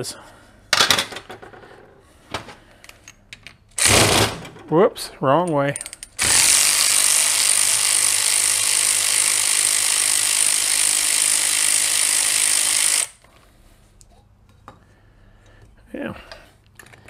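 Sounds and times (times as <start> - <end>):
power driver rattling whir: 3.8 - 4.5.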